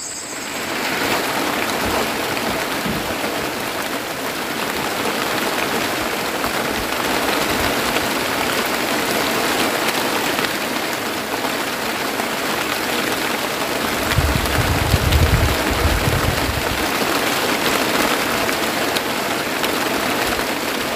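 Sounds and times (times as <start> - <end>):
rain pouring: 0.0 - 20.9
low rumble: 14.0 - 16.8.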